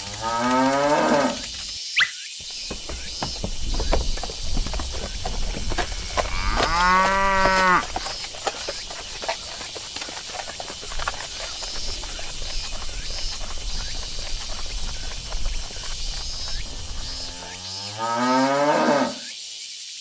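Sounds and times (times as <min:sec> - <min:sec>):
cow mooing: 0:00.1 - 0:01.4, 0:06.3 - 0:07.8, 0:17.0 - 0:19.3.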